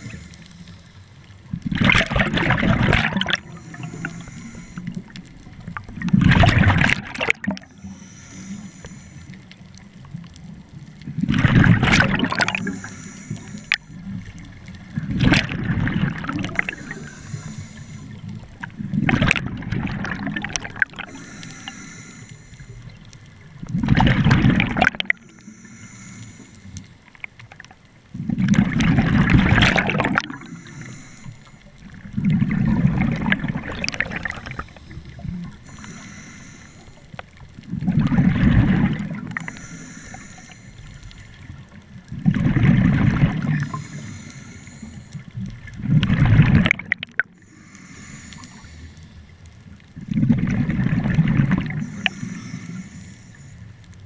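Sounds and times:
exhaled bubbles rushing underwater: 0:00.0 - 0:08.8, 0:09.5 - 0:25.4, 0:27.2 - 0:48.8, 0:49.8 - 0:53.5
regulator inhalation hiss: 0:03.4 - 0:05.0, 0:07.7 - 0:09.4, 0:12.6 - 0:13.9, 0:16.6 - 0:18.2, 0:21.1 - 0:22.9, 0:25.2 - 0:26.8, 0:30.4 - 0:31.6, 0:34.4 - 0:37.2, 0:39.4 - 0:41.3, 0:43.6 - 0:45.2, 0:47.4 - 0:49.3, 0:51.8 - 0:53.7.

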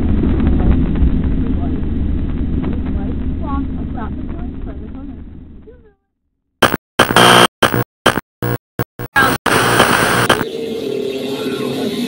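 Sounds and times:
stuttering noisy glitch bursts: 0:06.6 - 0:10.5.

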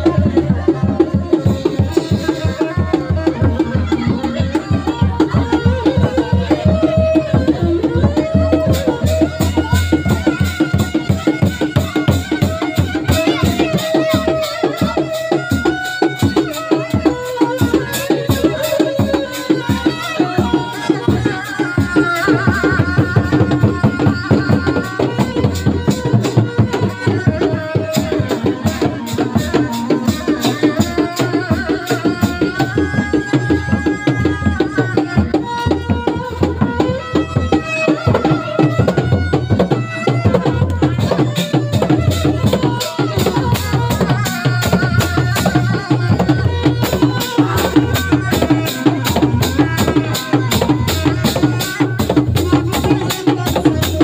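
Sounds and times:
frame drums fast rhythm: 0:00.0 - 0:54.0.

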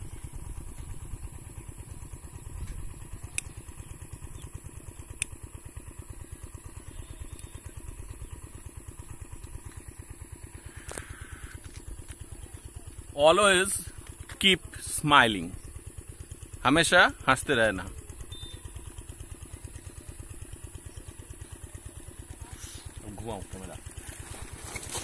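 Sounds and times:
motorcycle engine idling: 0:00.0 - 0:25.0
sharp clicks: 0:02.6 - 0:03.6, 0:05.0 - 0:05.4.

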